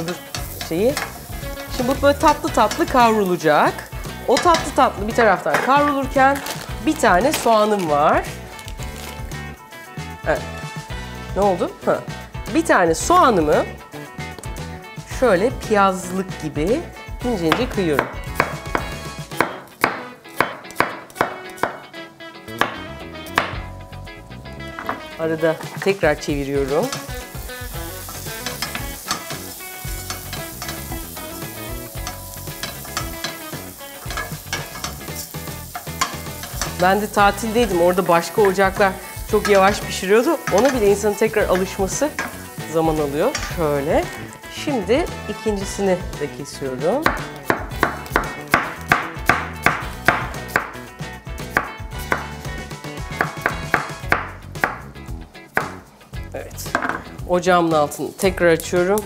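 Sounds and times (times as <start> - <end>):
pasta sizzling in butter: 0.0 - 9.5, 24.8 - 50.8
knife slicing onion on wood: 18.0 - 21.9, 47.0 - 50.8, 53.2 - 54.8.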